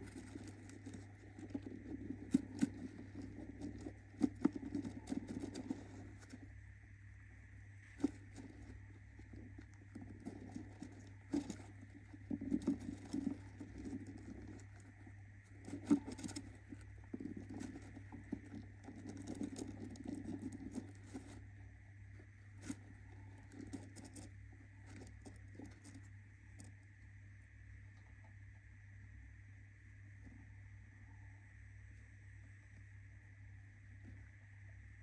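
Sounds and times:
rustling and scratching of paper: 0.0 - 6.6, 7.7 - 26.8.

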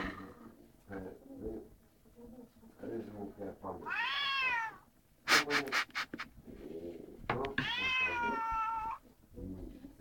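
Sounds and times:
cat meowing: 3.8 - 4.9, 7.5 - 9.0.

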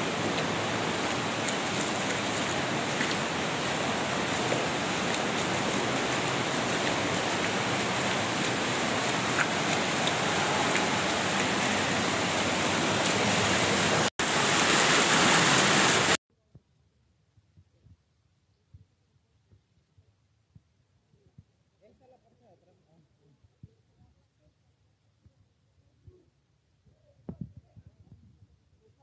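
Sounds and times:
floodwater rushing: 0.0 - 16.2.

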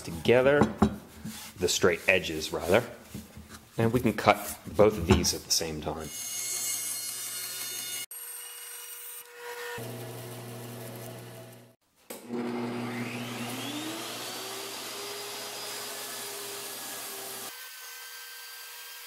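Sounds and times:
bandsaw cutting wood: 6.1 - 19.0
table saw motor whining: 9.2 - 17.5.

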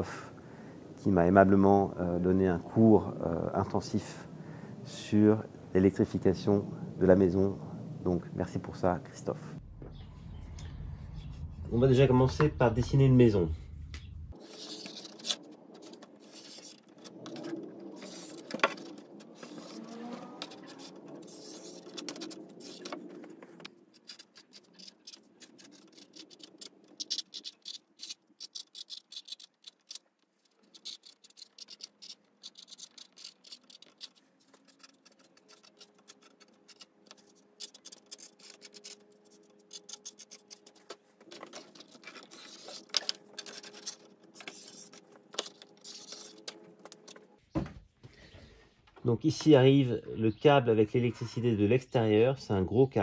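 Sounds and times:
marker scratching on cardboard: 14.4 - 47.2.

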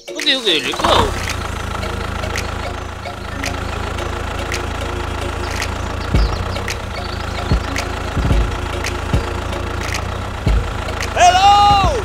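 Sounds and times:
tractor engine idling: 0.0 - 12.0
short low thuds: 6.1 - 6.9, 10.4 - 12.0.

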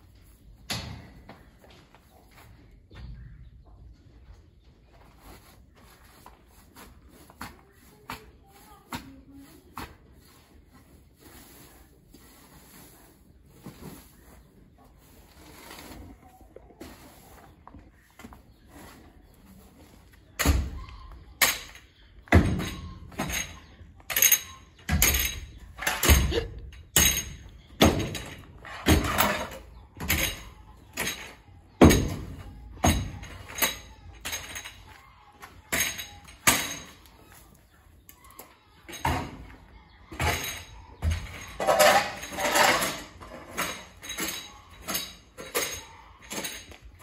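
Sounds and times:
shovel scraping along floor: 5.2 - 17.6, 41.6 - 44.3.

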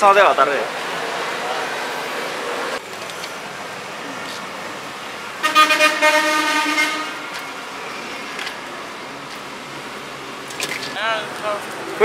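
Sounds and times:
street noise hum: 0.0 - 12.0
vehicle horn blowing: 5.4 - 7.4.

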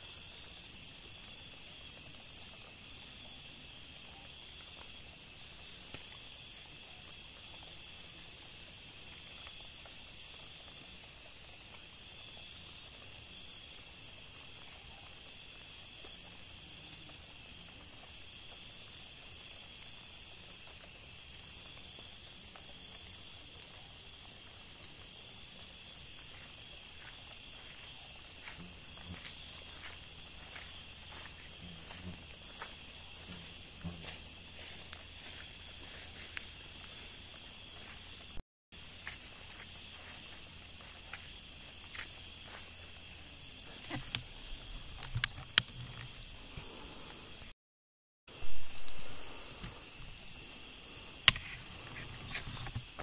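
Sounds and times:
night insects chorus: 0.0 - 47.5, 48.3 - 53.0.

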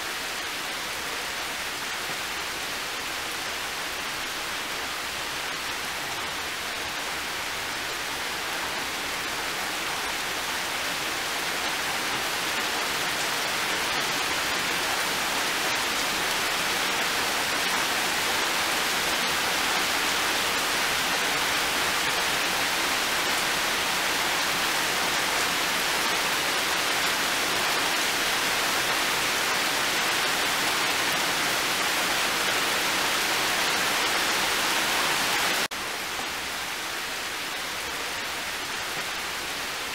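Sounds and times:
heavy rain on plants: 0.0 - 39.9
rain on metal roof: 0.0 - 39.9.

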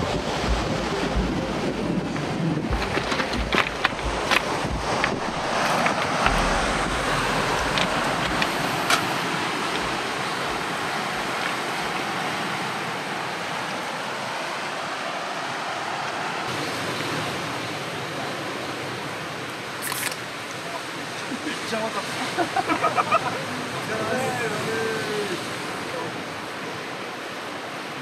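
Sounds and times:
wind rumble on microphone: 0.0 - 13.8
surf washing on cobblestones: 0.0 - 28.0.

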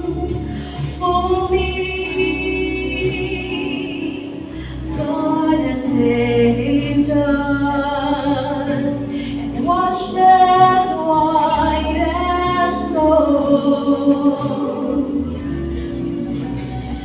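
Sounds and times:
soft low accompaniment: 0.0 - 17.0.

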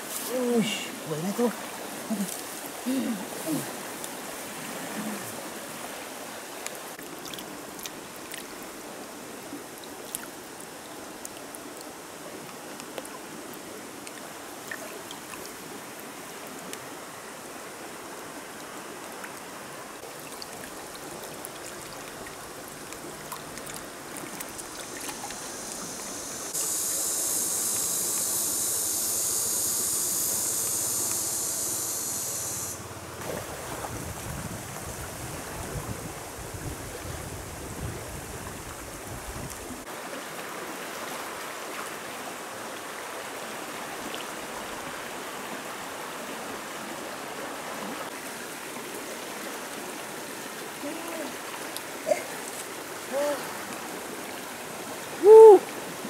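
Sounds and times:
stream water rushing: 0.0 - 31.4, 32.1 - 56.0
loud high-pitched hiss: 24.7 - 32.9.

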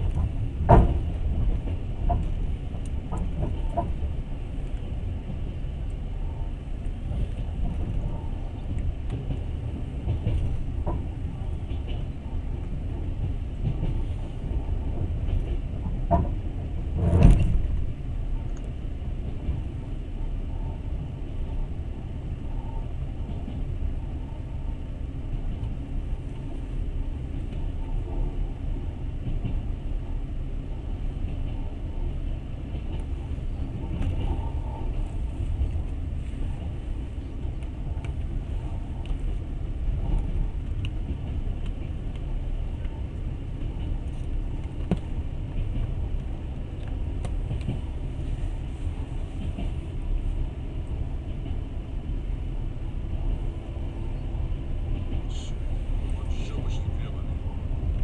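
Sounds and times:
train rumbling inside carriage: 0.0 - 58.0
faint clicks: 39.0 - 39.3.

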